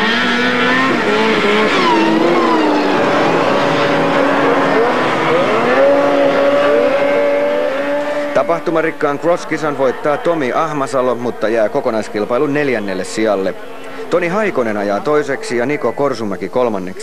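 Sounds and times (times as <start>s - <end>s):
snowmobile engines revving: 0.0s - 15.4s.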